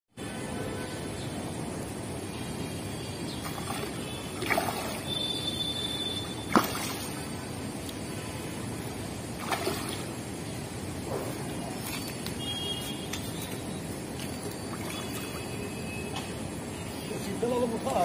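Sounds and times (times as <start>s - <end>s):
steady background hiss: 0.2s - 18.0s
fish splashing in water: 3.3s - 7.8s, 9.2s - 10.5s, 14.2s - 15.8s.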